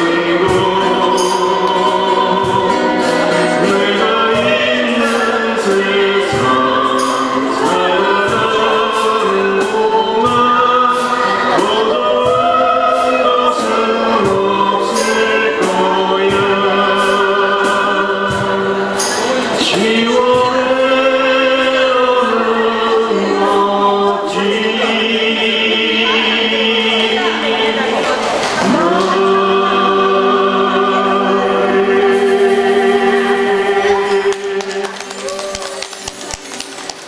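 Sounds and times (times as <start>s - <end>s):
person singing: 0.0s - 37.0s
strummed acoustic guitars: 0.0s - 37.0s
cajon beat: 31.8s - 37.0s.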